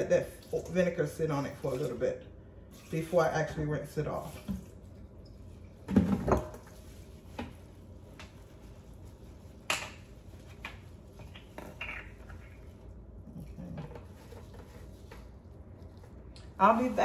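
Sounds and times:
kitchen items knocking and clattering: 5.8 - 6.8.

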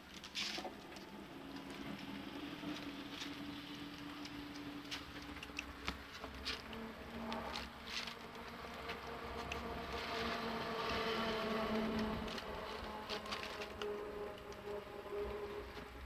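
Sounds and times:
puppy chewing and smacking: 4.2 - 6.8.

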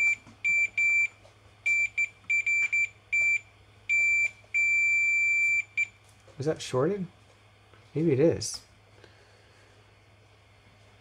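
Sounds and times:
multimeter beeping: 0.0 - 6.0.

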